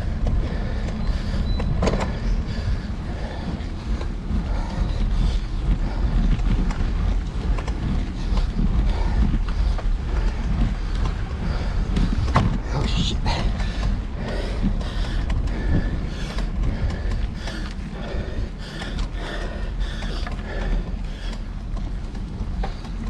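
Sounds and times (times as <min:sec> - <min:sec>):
bicycle clicks and rattles: 0:00.0 - 0:23.0
road rumble: 0:00.0 - 0:23.0.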